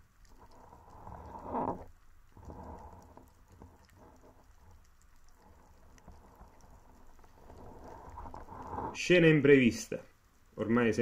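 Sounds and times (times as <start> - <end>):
faint underwater crackling ticks: 0.0 - 8.8.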